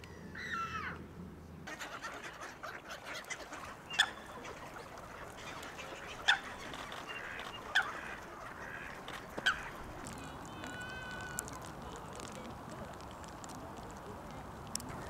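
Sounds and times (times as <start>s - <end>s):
waterfowl calls: 1.7s - 12.3s
faint bird chatter: 1.7s - 15.0s.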